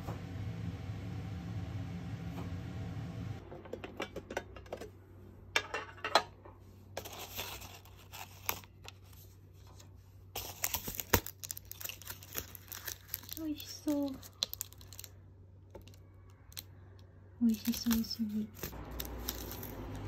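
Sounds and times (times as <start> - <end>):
low steady hum: 0.0 - 20.0
paper crinkling and rustling: 7.0 - 15.1, 17.5 - 20.0.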